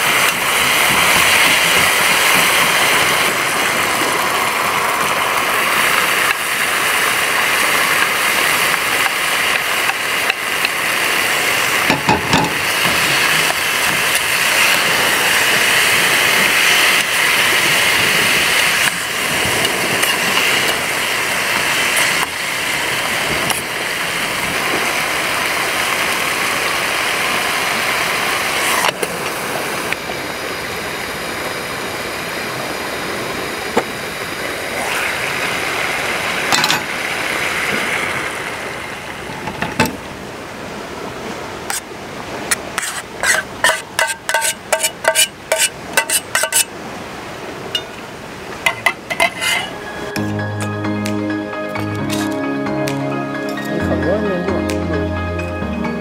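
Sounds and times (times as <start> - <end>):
metal spatula scraping a pan: 42.5 - 46.7, 48.7 - 49.8.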